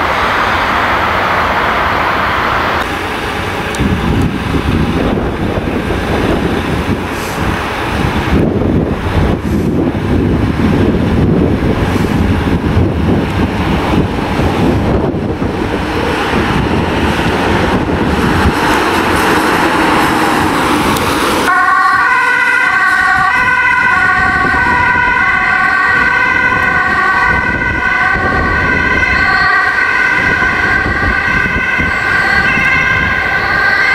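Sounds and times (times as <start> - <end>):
ambulance engine and wind noise: 0.0 - 33.9
two-tone siren: 21.5 - 33.9.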